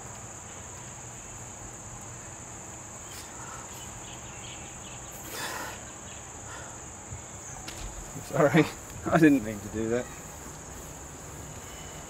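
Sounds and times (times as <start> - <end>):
insects chirring: 0.0 - 12.0
soft rustle: 7.2 - 12.0.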